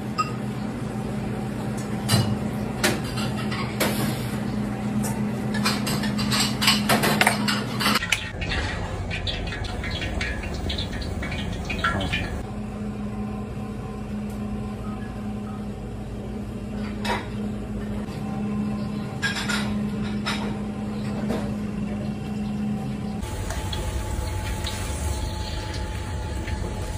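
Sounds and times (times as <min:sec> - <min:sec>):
utensils and dishes clinking: 0:05.0 - 0:12.4, 0:19.1 - 0:21.5
steady low hum: 0:07.5 - 0:26.9.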